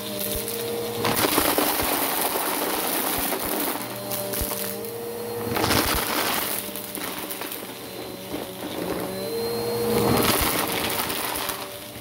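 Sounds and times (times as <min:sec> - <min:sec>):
vacuum cleaner running over carpet: 0:00.0 - 0:12.0
debris crackling and rattling: 0:01.0 - 0:04.1, 0:10.0 - 0:12.0.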